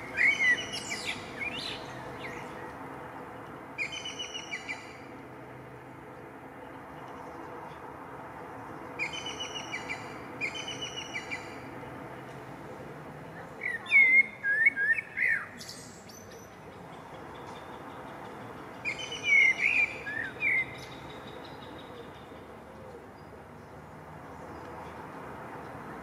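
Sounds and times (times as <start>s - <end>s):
chaffinch singing: 0.0s - 2.7s, 3.8s - 5.0s, 9.0s - 11.6s, 13.4s - 22.5s.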